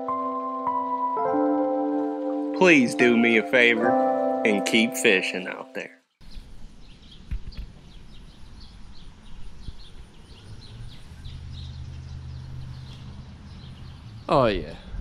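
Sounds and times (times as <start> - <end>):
bird chirps: 6.2 - 14.4.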